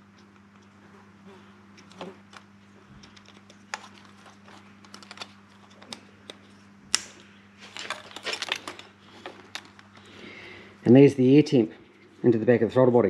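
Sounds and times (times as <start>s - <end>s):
wiring rustling: 1.7s - 10.5s.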